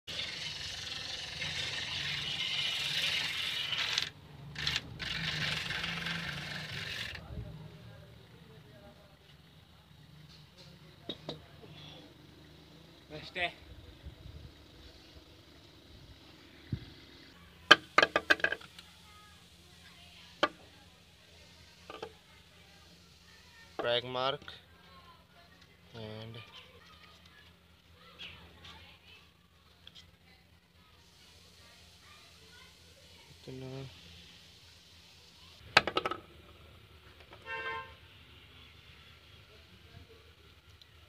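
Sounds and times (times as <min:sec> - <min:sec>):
angle grinder scraping metal: 0:00.1 - 0:07.2
angle grinder motor hum: 0:00.1 - 0:07.3.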